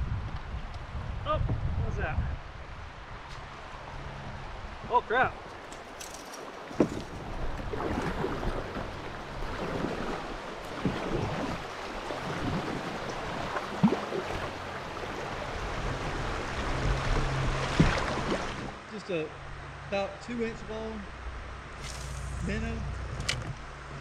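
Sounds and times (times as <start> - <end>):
wind buffeting microphone: 0.0 - 18.8
river water rushing and gurgling: 2.4 - 24.0
paddle splashes: 5.4 - 18.8.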